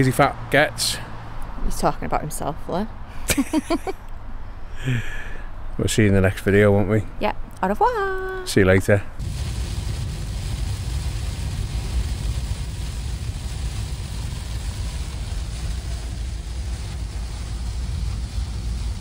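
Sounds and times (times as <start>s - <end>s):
rain: 9.2s - 19.0s
van driving rumble: 9.2s - 19.0s
wet road hiss: 9.2s - 19.0s.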